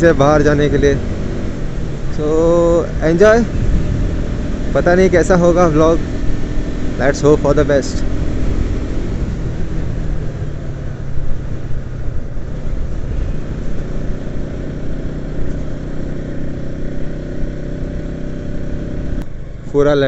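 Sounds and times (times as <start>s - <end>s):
wind noise: 0.0s - 15.0s
motorcycle engine running: 0.0s - 19.9s
road noise: 0.0s - 20.0s.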